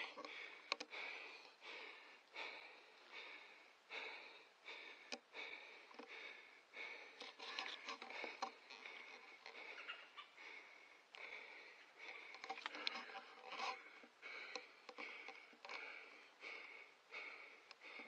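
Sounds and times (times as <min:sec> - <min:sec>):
squirrel barking: 0:09.8 - 0:10.4.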